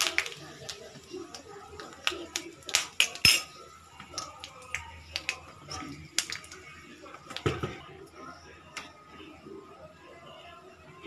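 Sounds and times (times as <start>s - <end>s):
seeds crackling in hot oil: 0.0s - 7.5s.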